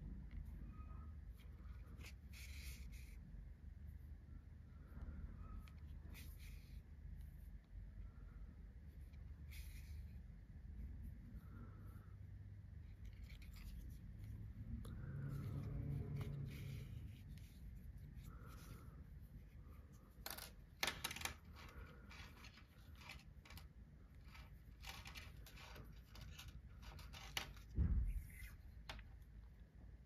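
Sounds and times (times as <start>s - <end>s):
yarn scratching and rustling: 12.7s - 29.4s
dull thump: 27.7s - 28.4s.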